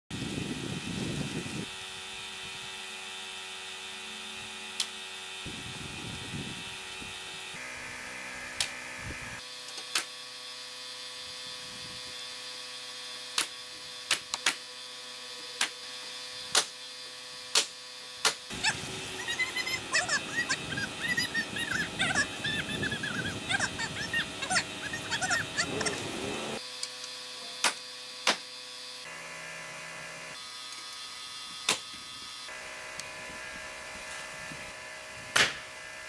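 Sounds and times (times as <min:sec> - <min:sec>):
steady mechanical hum: 0:00.1 - 0:36.0
pneumatic nailer shots: 0:09.6 - 0:10.2, 0:12.9 - 0:14.8, 0:15.6 - 0:16.8, 0:17.4 - 0:18.5, 0:27.6 - 0:28.5, 0:31.6 - 0:32.0, 0:35.3 - 0:35.8.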